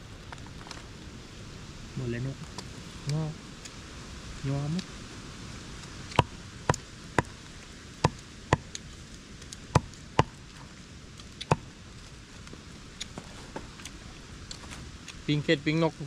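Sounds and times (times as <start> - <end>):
low background hiss: 0.0 - 16.0.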